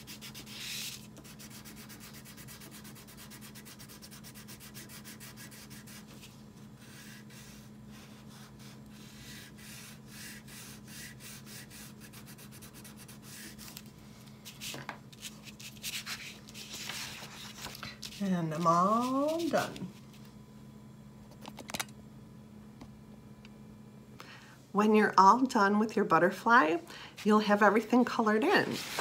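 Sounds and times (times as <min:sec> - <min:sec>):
colouring strokes scratching paper: 0:00.0 - 0:13.9, 0:14.5 - 0:19.9.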